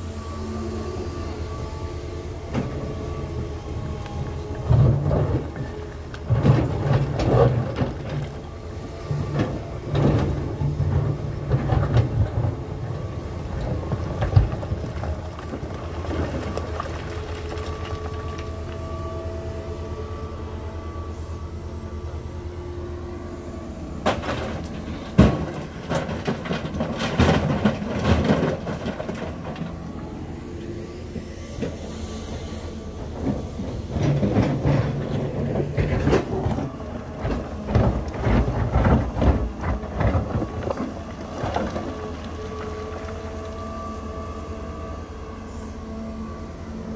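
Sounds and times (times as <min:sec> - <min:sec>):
excavator diesel engine: 0:00.0 - 0:46.9
bucket scraping and clanking stones: 0:24.1 - 0:29.7.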